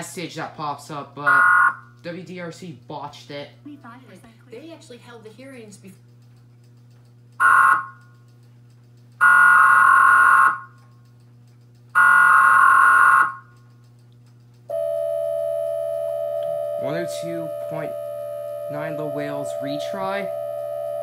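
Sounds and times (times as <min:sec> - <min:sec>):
data header bursts from tv speaker: 0:01.3 - 0:01.8, 0:07.4 - 0:08.0, 0:12.0 - 0:13.4, 0:16.8 - 0:18.0
two-tone attention signal: 0:07.4 - 0:08.0, 0:12.0 - 0:13.4, 0:14.7 - 0:21.0.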